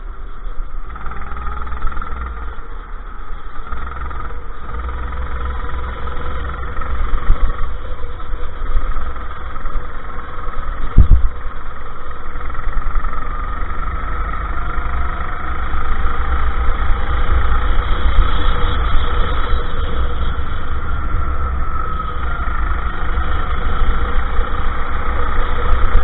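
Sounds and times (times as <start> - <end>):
go-kart engine racing: 0.0 - 26.0
heavy low rumble: 0.0 - 26.0.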